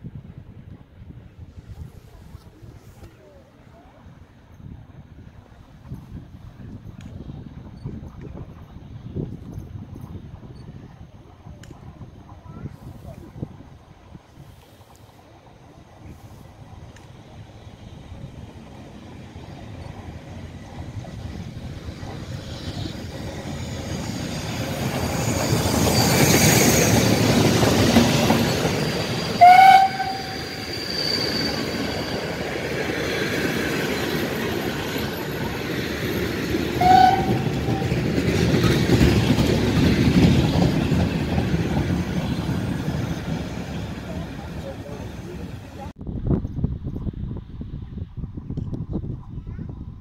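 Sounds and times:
steam locomotive whistle blasts: 0:29.3 - 0:31.6, 0:36.8 - 0:38.0
train wheels clattering over rail joints: 0:31.6 - 0:45.0.

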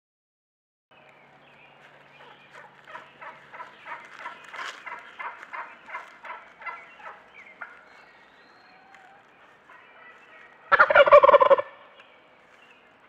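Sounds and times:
turkeys gobbling: 0:02.2 - 0:11.8.

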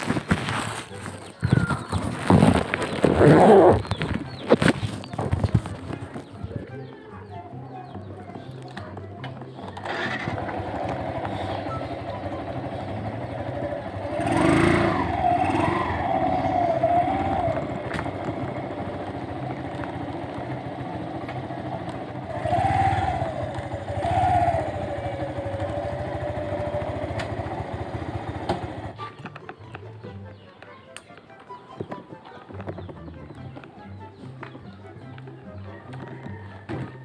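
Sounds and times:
small motorcycle engine revving: 0:01.9 - 0:04.0, 0:09.8 - 0:29.0.

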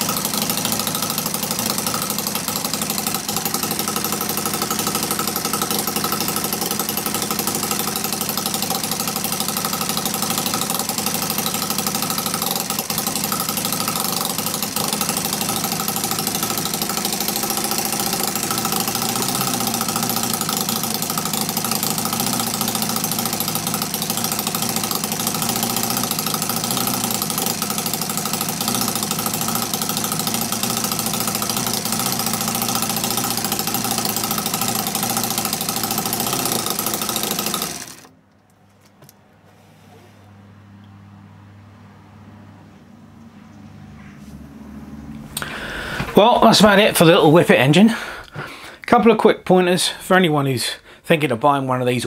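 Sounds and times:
model petrol engine running: 0:00.0 - 0:38.2, 0:45.3 - 0:48.2.

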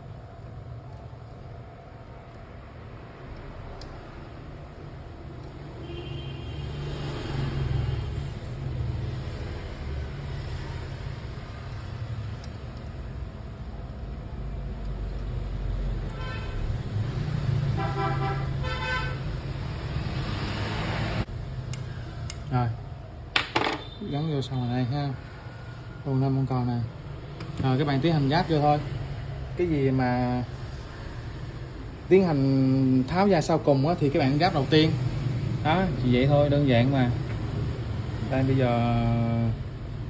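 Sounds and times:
road traffic rumbling: 0:00.0 - 0:40.0
vehicle horn toots: 0:05.8 - 0:06.7.

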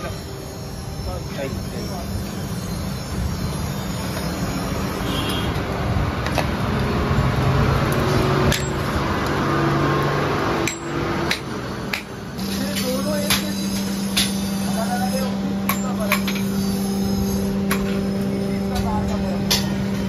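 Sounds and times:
steady background noise: 0:00.0 - 0:20.0
hammer striking steel on anvil: 0:08.4 - 0:08.9, 0:10.6 - 0:20.0.

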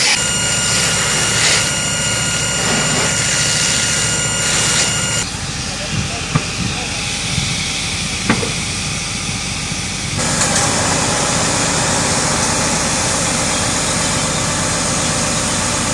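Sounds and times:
fire hose spraying water: 0:00.0 - 0:05.6
engine running: 0:00.0 - 0:15.9.

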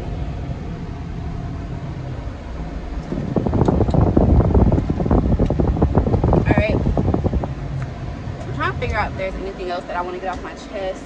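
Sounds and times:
car interior rumble: 0:00.0 - 0:11.0
wind buffeting microphone: 0:01.8 - 0:10.6.

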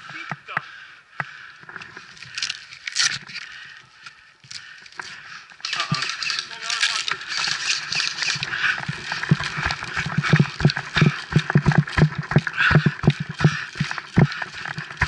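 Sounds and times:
running footsteps on forest floor: 0:00.0 - 0:15.0
rustling: 0:01.7 - 0:15.0.

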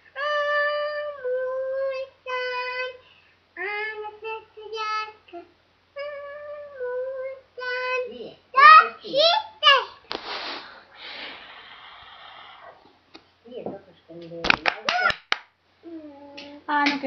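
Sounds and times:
girl singing: 0:00.0 - 0:10.1, 0:15.8 - 0:17.0.

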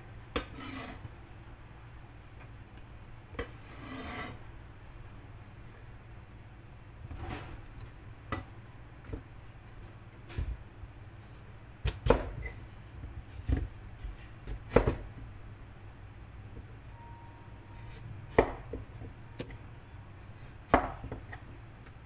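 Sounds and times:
knife chopping on cutting board: 0:13.4 - 0:15.1, 0:20.7 - 0:21.3.

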